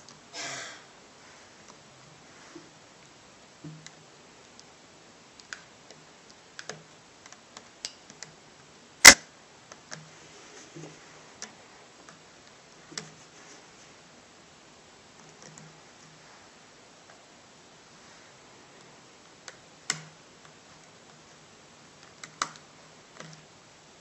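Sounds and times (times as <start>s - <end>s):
loud sharp click: 9.0s - 9.3s.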